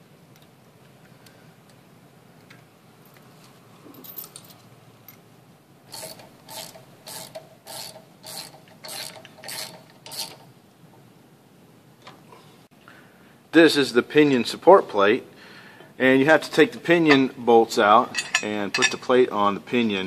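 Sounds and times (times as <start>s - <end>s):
ratchet wrench clicking: 5.9s - 10.4s.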